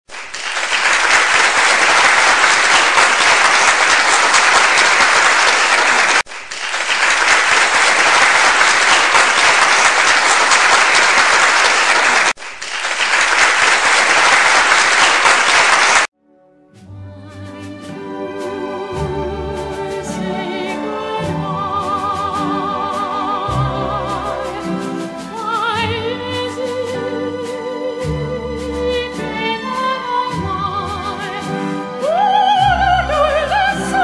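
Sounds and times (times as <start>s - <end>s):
large audience applause: 0.1s - 16.1s.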